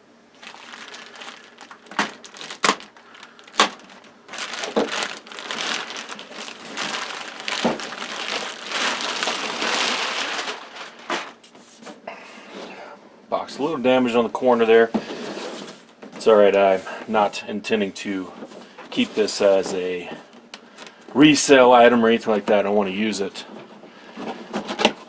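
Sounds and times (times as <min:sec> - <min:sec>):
plastic bag crinkling: 0:00.3 - 0:11.5.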